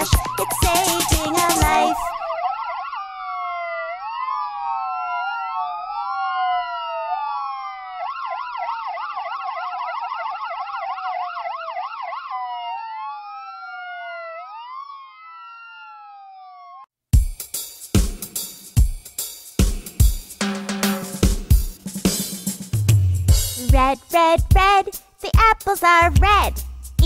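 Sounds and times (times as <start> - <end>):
ambulance siren wail and yelp: 0.0 - 16.9.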